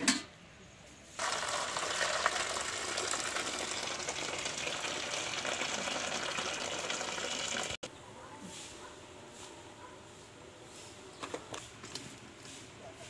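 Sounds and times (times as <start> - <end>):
water pouring into basin: 1.2 - 7.9.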